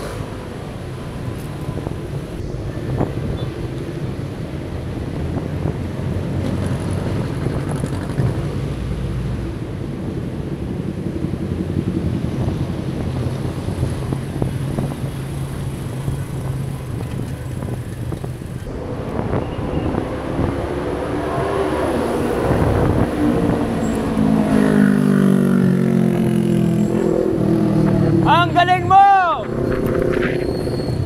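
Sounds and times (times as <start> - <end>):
wind rush: 0.0 - 31.0
vehicle engine passing: 15.4 - 31.0.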